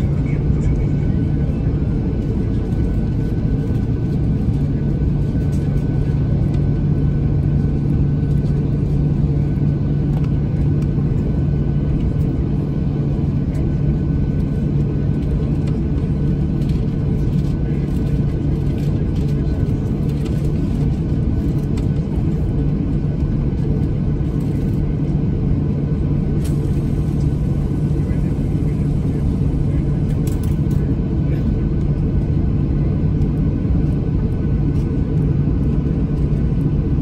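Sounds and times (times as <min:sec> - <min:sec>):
aircraft cabin hum and rumble: 0:00.0 - 0:37.0.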